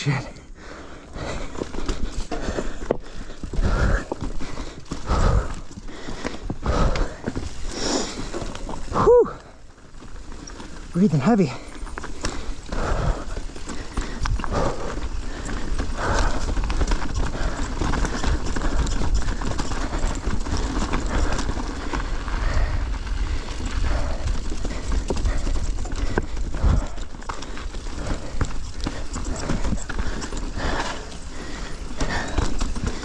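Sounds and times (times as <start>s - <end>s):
low rumble of wind: 0.0s - 33.0s
bike knocks and rattles on rock: 23.0s - 33.0s.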